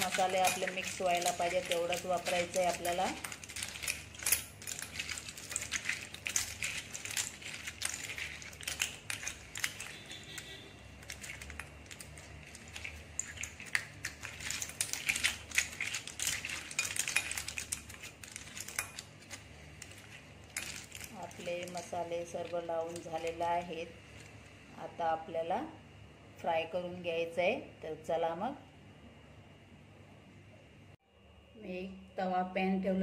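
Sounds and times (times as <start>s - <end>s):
shells clicking in glass bowl: 0.0s - 21.9s.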